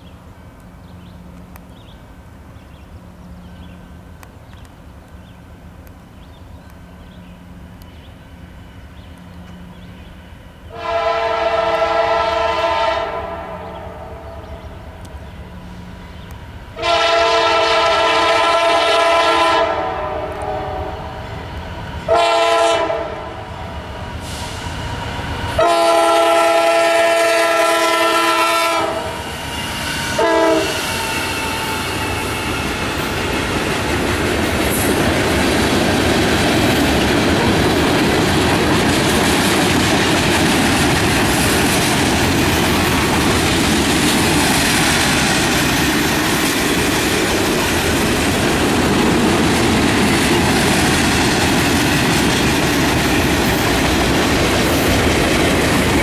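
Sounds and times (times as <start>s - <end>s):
locomotive air horn: 10.7s - 14.4s, 16.8s - 21.2s, 22.0s - 23.6s, 25.6s - 32.9s
train wheels clattering past: 14.6s - 56.0s.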